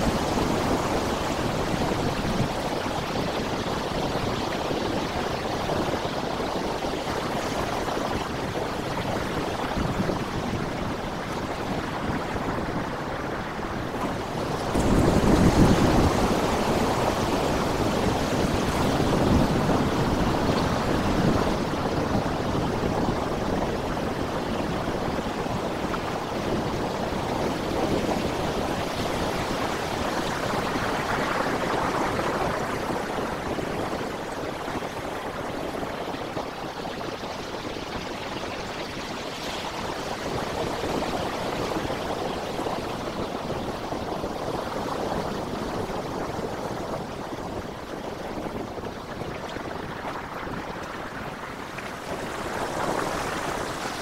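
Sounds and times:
surf washing over rocks: 0:00.0 - 0:54.0.

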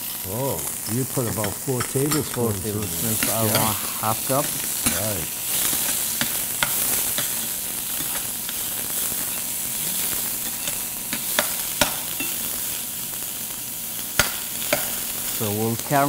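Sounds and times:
onion sizzling in oil: 0:00.0 - 0:16.0
metal spoon clicking on pan: 0:05.7 - 0:07.4.

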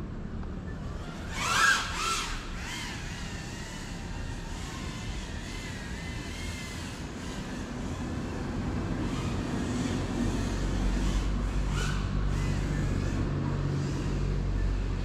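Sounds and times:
distant drone propellers whining: 0:00.0 - 0:15.0.

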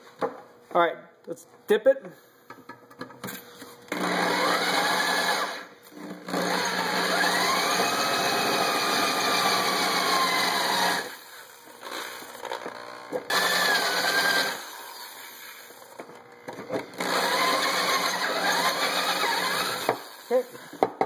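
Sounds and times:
electric drill drilling into metal: 0:03.9 - 0:16.0, 0:16.9 - 0:20.9.

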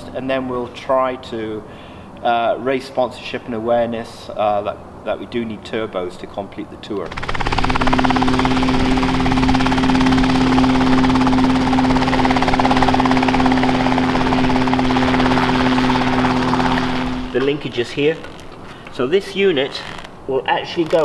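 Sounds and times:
helicopter engine and rotor drone: 0:07.1 - 0:17.4.

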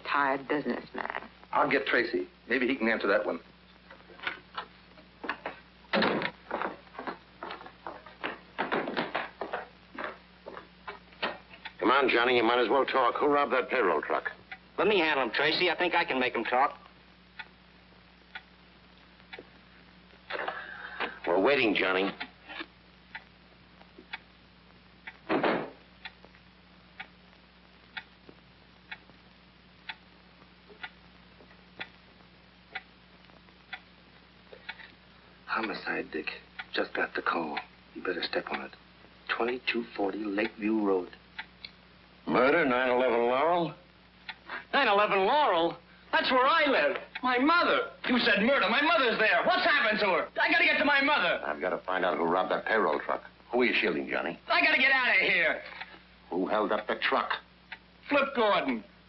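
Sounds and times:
faint steady hum: 0:00.0 - 0:59.0
footsteps on hard floor: 0:05.2 - 0:11.0
door banging shut: 0:05.9 - 0:06.3, 0:25.3 - 0:25.8
clock ticking: 0:14.2 - 0:17.6, 0:18.2 - 0:18.6, 0:23.0 - 0:24.4, 0:25.0 - 0:27.2, 0:27.8 - 0:29.2, 0:29.8 - 0:30.1, 0:30.7 - 0:32.0, 0:32.7 - 0:33.9, 0:34.5 - 0:41.8, 0:44.2 - 0:44.4, 0:56.9 - 0:57.9.

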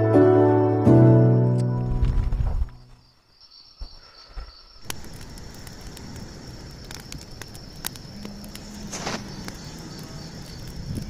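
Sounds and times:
cricket trill: 0:01.1 - 0:11.0
campfire crackling and popping: 0:04.6 - 0:11.0
hissing flare of noise: 0:04.8 - 0:11.0.

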